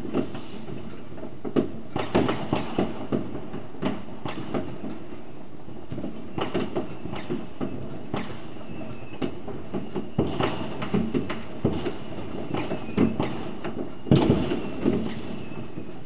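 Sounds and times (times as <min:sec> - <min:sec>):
fireworks and firecrackers banging: 0:00.0 - 0:16.0
faint falling whistle: 0:12.4 - 0:13.4.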